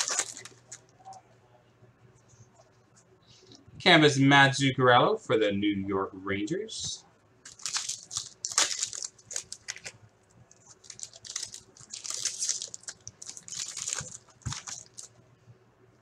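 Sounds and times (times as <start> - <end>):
foil wrapper crinkling: 0.0 - 0.9, 7.4 - 10.0, 10.6 - 15.1.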